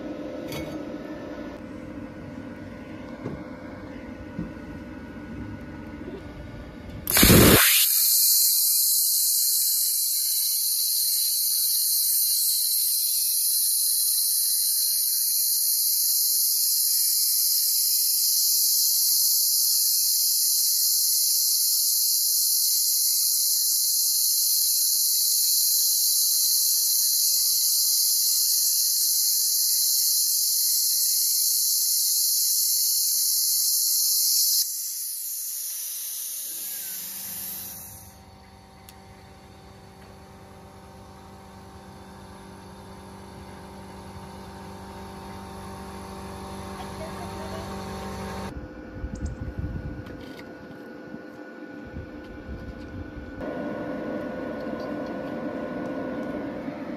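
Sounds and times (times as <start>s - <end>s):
plasma cutter hissing: 7.0s - 38.4s.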